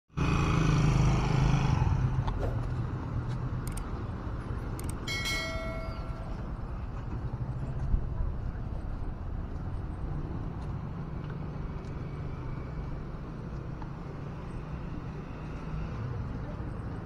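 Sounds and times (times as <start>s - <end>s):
street traffic: 0.1s - 17.0s
sharp clicks: 3.6s - 3.9s, 4.7s - 5.1s
metallic bell-like ring: 5.1s - 6.6s.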